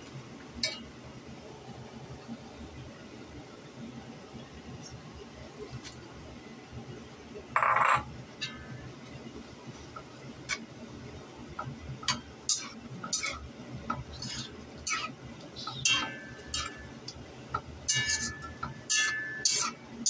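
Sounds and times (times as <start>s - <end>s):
spatula scraping and knocking wok: 12.0s - 19.8s.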